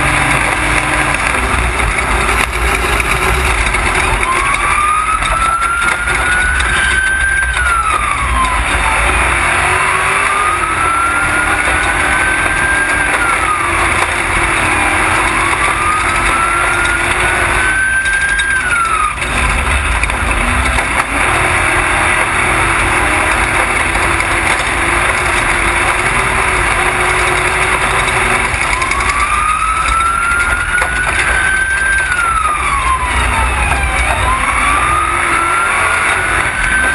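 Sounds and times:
truck engine revving: 0.0 - 36.9.

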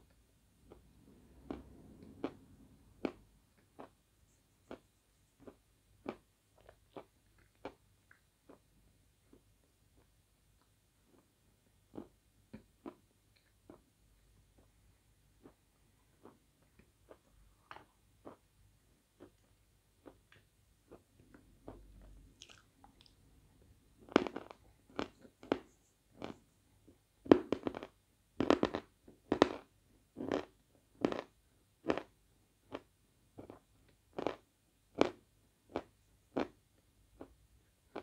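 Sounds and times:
chalk crunching as chewed: 20.0 - 23.2, 34.2 - 34.4.

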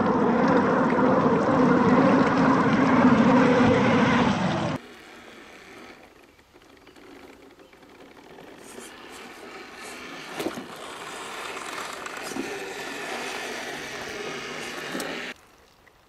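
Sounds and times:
electric motor whining: 0.0 - 15.4
tyres scraping over log: 5.2 - 15.4.

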